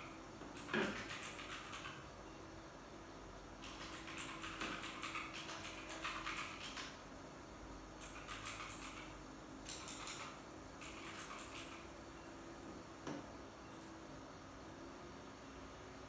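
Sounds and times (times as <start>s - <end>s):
typing on computer keyboard: 0.5s - 2.0s, 3.6s - 7.0s, 8.0s - 11.9s.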